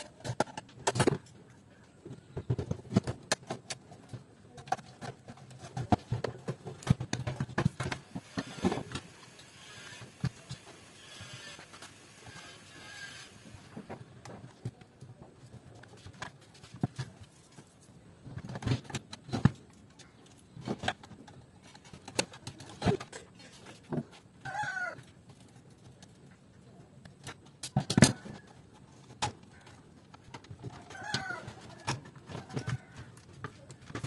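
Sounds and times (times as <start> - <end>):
plastic and metal parts clicking: 0.0 - 12.0, 18.4 - 24.0.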